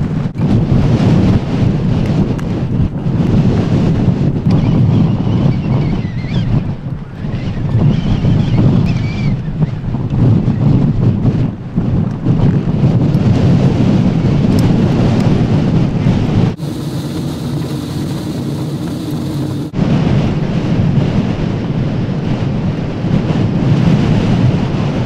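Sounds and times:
steady wind rushing: 0.0s - 25.0s
wind buffeting microphone: 0.0s - 25.0s.

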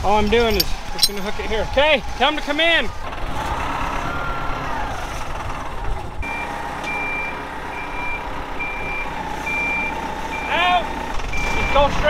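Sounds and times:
reversing alarm beeping: 6.2s - 10.6s, 11.3s - 11.9s.

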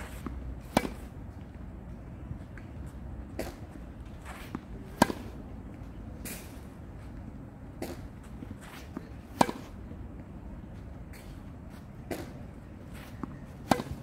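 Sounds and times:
tennis racket hitting ball: 0.0s - 1.2s, 4.3s - 5.4s, 8.7s - 9.8s, 13.6s - 14.0s.

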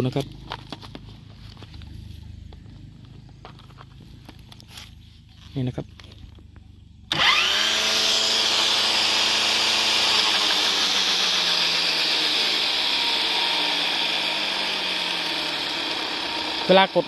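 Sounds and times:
brush cutter motor whining: 7.1s - 17.0s.

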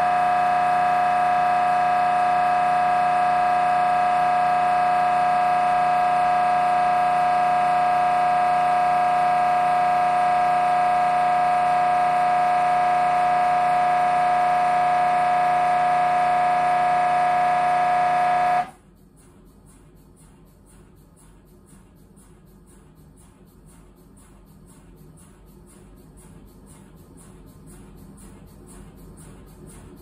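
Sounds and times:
mri scanner buzzing: 0.0s - 18.8s.

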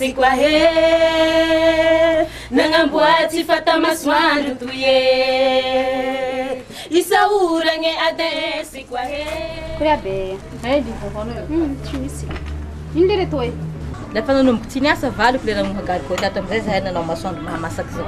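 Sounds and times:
woman singing: 0.0s - 10.6s.

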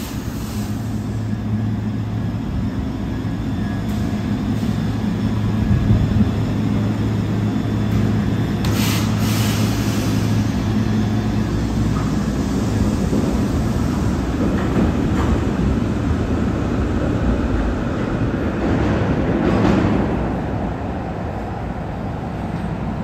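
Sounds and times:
steel wheels rumbling on rail: 0.0s - 23.0s
trolley steady hum: 0.0s - 23.0s
brief hiss: 8.7s - 10.4s.

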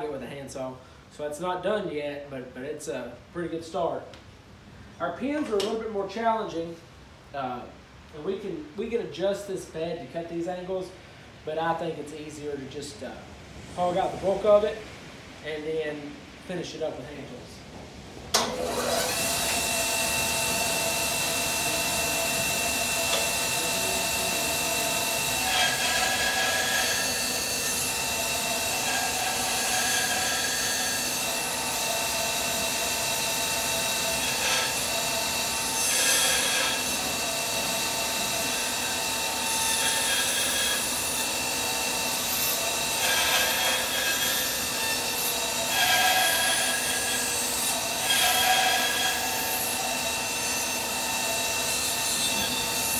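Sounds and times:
bandsaw blade cutting wood: 18.4s - 52.9s
bandsaw running: 18.4s - 52.9s.

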